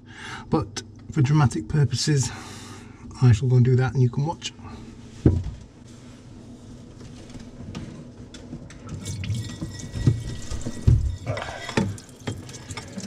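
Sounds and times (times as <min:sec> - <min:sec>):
water dripping and splashing from pipe: 0:08.9 - 0:13.0.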